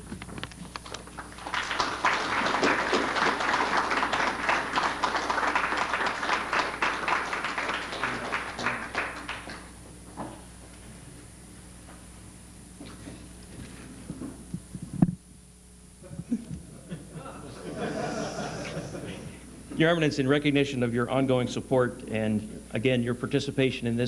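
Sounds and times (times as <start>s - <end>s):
audience applauding: 0.8s - 9.7s.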